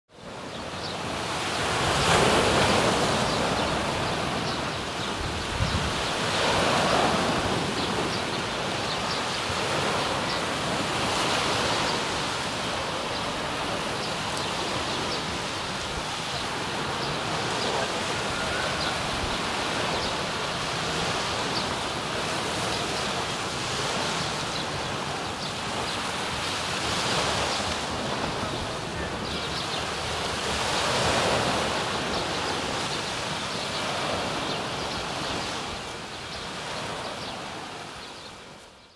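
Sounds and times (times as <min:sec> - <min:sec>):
waves washing onto sandy beach: 0:00.1 - 0:38.8.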